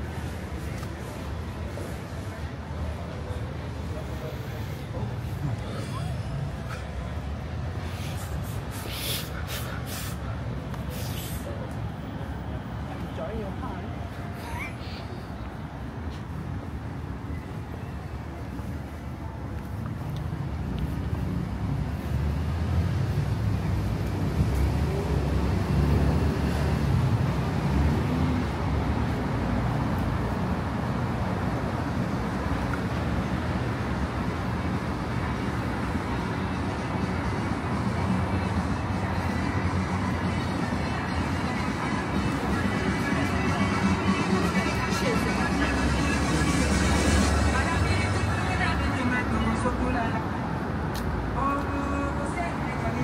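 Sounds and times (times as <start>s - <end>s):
low traffic rumble: 0.0s - 53.0s
short hisses: 7.8s - 10.3s, 10.9s - 11.6s.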